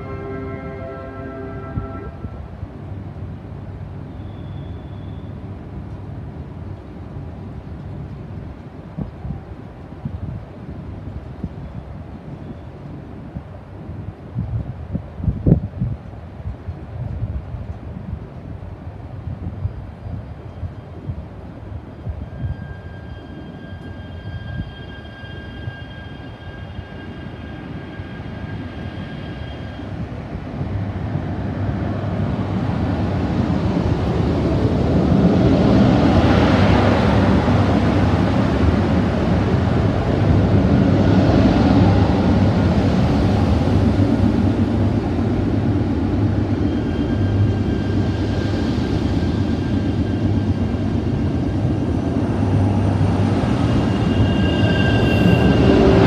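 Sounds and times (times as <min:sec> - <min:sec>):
train pulling out: 0:21.8 - 0:56.0.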